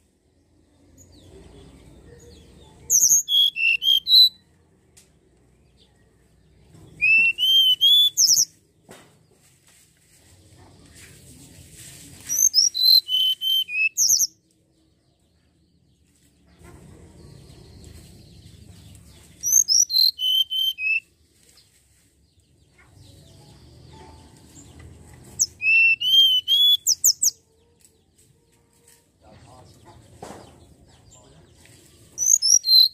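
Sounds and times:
bird singing whistled notes: 0:02.9 - 0:04.5, 0:06.9 - 0:08.6, 0:12.3 - 0:14.4, 0:19.4 - 0:21.1, 0:25.4 - 0:27.4, 0:32.1 - 0:32.9.

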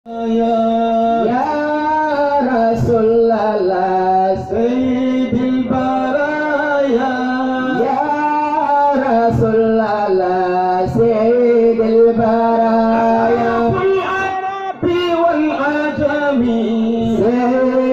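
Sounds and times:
man singing into a microphone: 0:00.0 - 0:17.9.

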